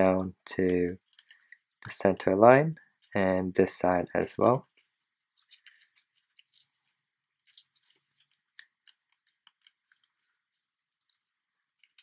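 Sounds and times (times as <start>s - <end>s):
paper crinkling: 4.2s - 12.0s.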